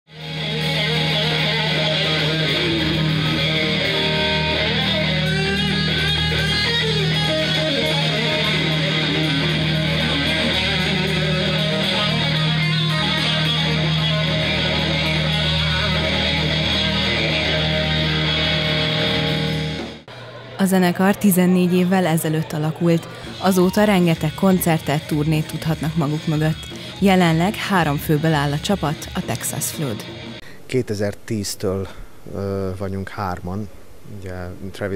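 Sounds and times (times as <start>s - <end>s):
bass guitar: 0.1s - 20.1s
drums: 0.1s - 20.2s
electric guitar lead: 0.1s - 30.5s.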